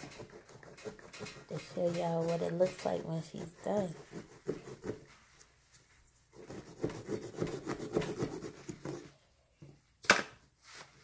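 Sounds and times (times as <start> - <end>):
tool scraping pumpkin flesh: 0.0 - 5.5, 6.3 - 9.2.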